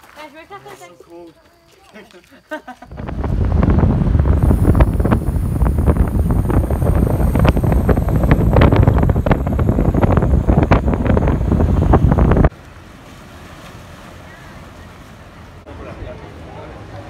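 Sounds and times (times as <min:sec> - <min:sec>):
wind buffeting microphone: 0:02.9 - 0:12.5.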